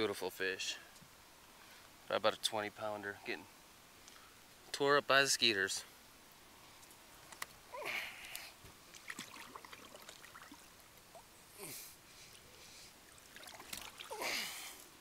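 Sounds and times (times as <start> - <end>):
water splashing and sloshing: 8.3 - 11.4, 12.2 - 14.9.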